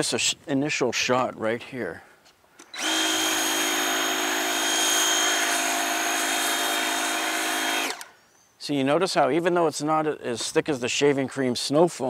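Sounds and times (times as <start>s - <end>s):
power cleaner motor whine: 2.8s - 8.1s.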